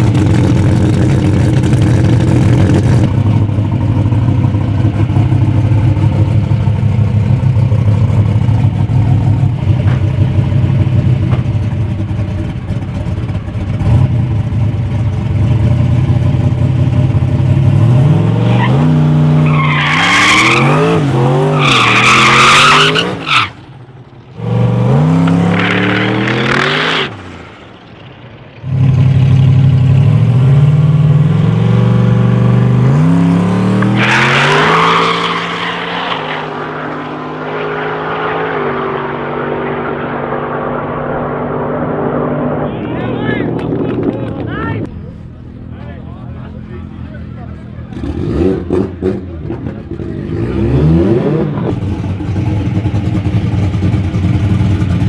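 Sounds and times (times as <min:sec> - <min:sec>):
car engine idling and revving: 0:00.0 - 0:55.0
tyre squeal: 0:21.5 - 0:23.6, 0:33.8 - 0:39.1.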